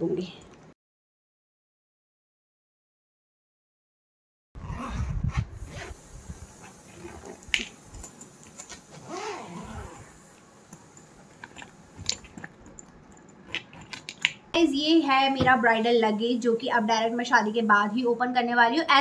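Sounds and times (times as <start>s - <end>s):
suitcase zipper pulled: 4.6s - 6.0s, 8.7s - 10.2s.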